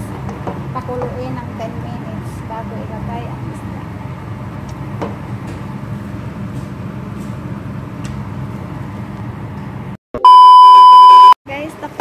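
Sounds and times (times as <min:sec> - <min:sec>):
electronic beep: 0:10.2 - 0:11.4.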